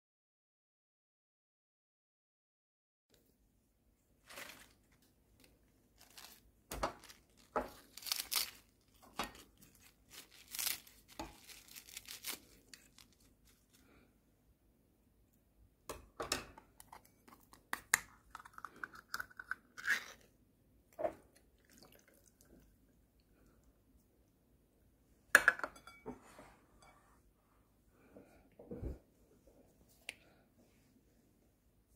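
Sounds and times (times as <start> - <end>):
food rustling and crinkling: 4.2 - 14.0.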